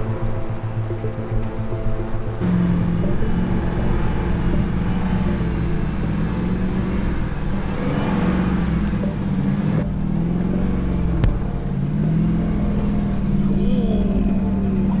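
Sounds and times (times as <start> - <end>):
engine running steadily: 0.0 - 15.0.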